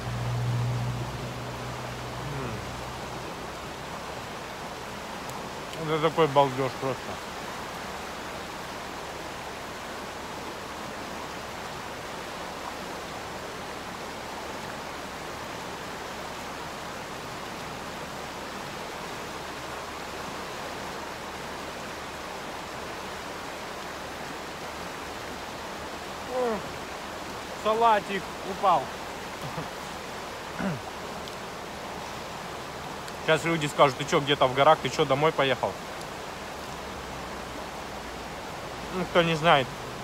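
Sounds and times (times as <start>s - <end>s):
river rushing over rocks: 0.0s - 40.0s.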